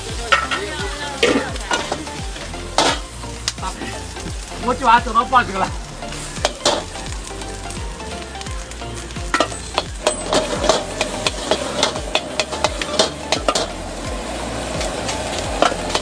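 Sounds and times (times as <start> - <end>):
food sizzling in a wok: 0.0 - 16.0
metal spatula scraping a pan: 6.0 - 7.0, 9.3 - 13.8.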